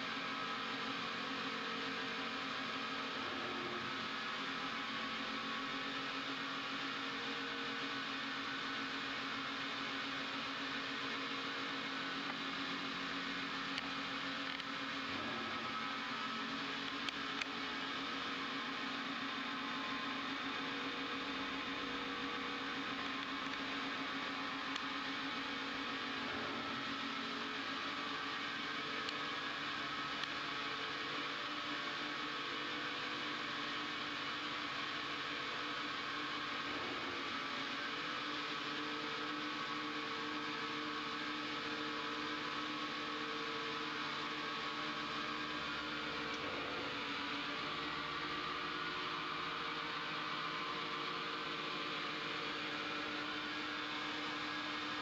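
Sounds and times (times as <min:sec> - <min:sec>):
lathe humming and whirring: 0:00.0 - 0:55.0.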